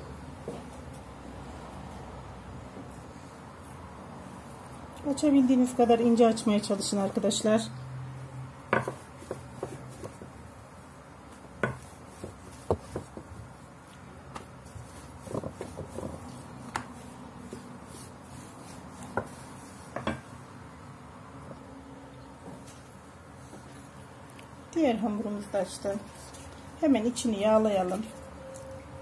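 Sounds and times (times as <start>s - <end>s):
rolling pin rubbing on dough: 8.8s - 10.6s, 11.3s - 20.2s.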